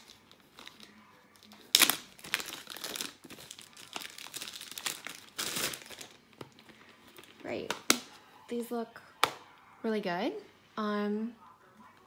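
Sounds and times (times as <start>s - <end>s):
plastic bag crinkling: 0.0s - 7.4s.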